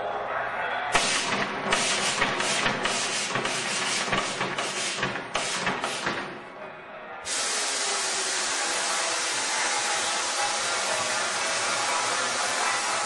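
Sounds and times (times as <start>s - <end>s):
short air hisses: 7.3s - 12.4s.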